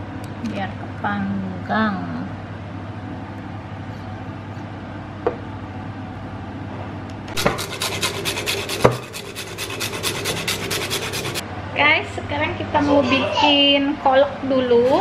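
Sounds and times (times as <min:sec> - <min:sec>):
utensil scraping strokes: 0:07.4 - 0:11.4.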